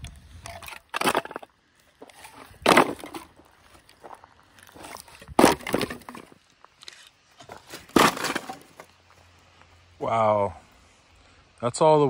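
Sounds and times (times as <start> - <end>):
scrap wood knocking and clattering: 0.5 - 3.3, 4.8 - 6.4, 7.4 - 8.9.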